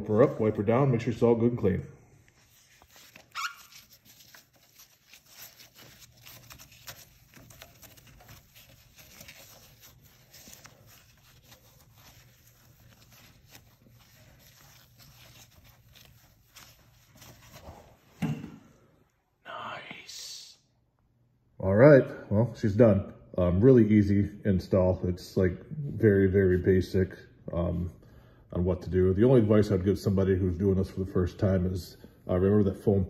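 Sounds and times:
wipe rubbing on painted metal: 2.2s - 18.1s.

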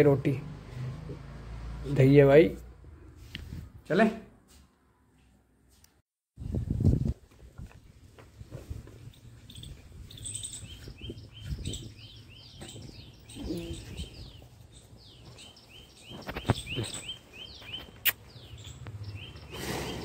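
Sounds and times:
small bird chirping: 9.5s - 20.0s.

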